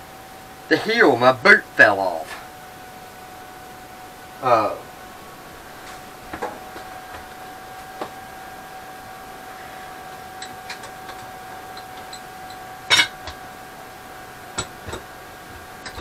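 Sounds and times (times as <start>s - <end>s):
steady hum: 0.0s - 16.0s
metal parts clanking: 10.4s - 13.4s.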